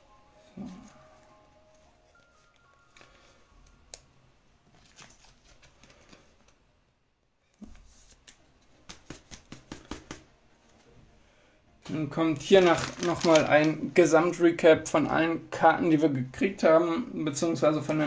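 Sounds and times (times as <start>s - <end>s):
trading cards clicking and tapping: 8.3s - 10.3s.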